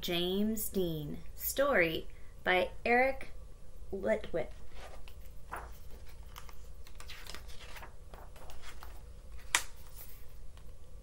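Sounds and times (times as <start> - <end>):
paper pages rustling: 4.6 - 10.7
sharp page snap: 9.4 - 10.0.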